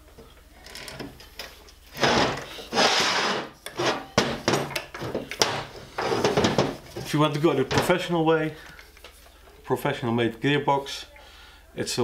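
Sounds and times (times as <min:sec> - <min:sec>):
heavy motor scraping on bench: 0:02.0 - 0:04.1.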